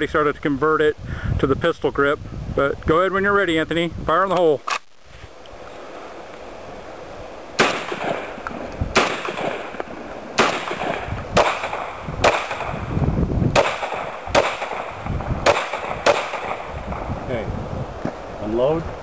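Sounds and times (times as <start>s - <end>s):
handgun shots: 7.6s - 8.4s, 9.0s - 9.8s, 10.4s - 12.8s, 13.6s - 16.7s
shotgun shots: 7.6s - 12.9s, 13.5s - 17.1s.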